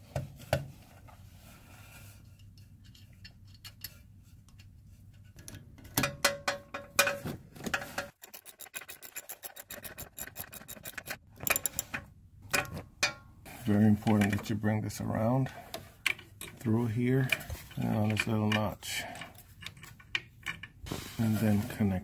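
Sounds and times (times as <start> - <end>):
ratchet wrench clicking: 8.2 - 11.8
faint rubbing: 20.9 - 22.0.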